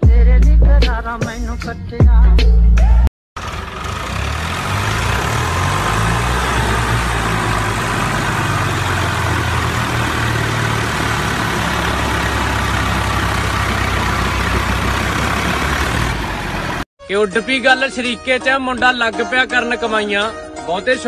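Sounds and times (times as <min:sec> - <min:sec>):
tractor engines running hard: 0:03.4 - 0:16.9.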